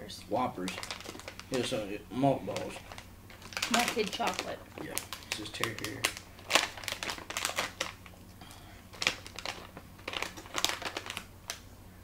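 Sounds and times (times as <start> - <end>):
plastic wrapper crinkling: 0.6 - 1.8, 2.4 - 11.7.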